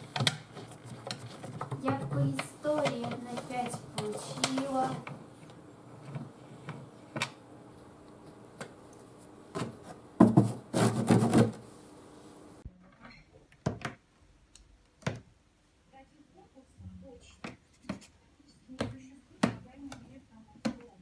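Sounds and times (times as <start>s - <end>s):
hand scratching rope board: 9.7s - 11.6s.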